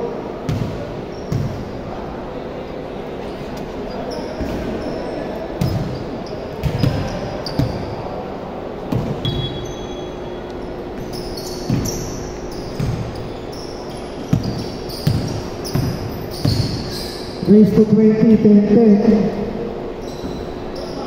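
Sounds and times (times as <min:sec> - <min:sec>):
sneakers squeaking: 0:00.4 - 0:02.0, 0:03.2 - 0:17.8, 0:19.8 - 0:21.0
basketball bouncing on wooden floor: 0:06.6 - 0:07.8, 0:11.6 - 0:12.1, 0:12.7 - 0:13.2, 0:14.3 - 0:16.9.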